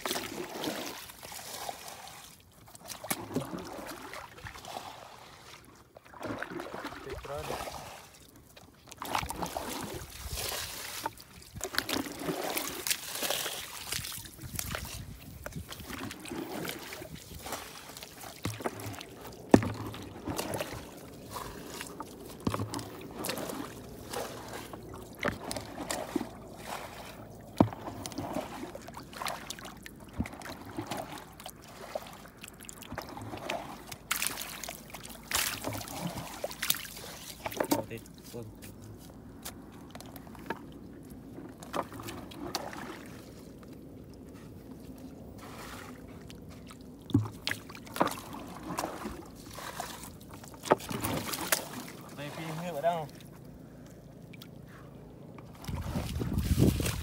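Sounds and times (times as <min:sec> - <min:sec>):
fish splashing: 0:00.0 - 0:08.3, 0:08.9 - 0:15.0, 0:15.8 - 0:37.8, 0:45.4 - 0:52.2
water trickling and sloshing: 0:00.0 - 0:57.0.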